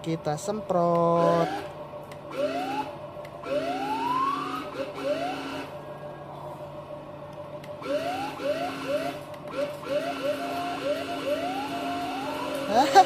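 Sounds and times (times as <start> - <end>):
steady hum: 0.0 - 13.0
small electric motors whining: 1.0 - 1.7, 2.3 - 6.4, 7.8 - 13.0.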